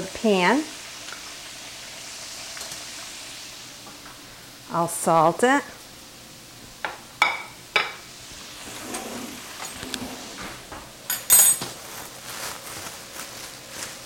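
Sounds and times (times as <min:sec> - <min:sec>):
metal utensils clinking: 0:11.1 - 0:11.8.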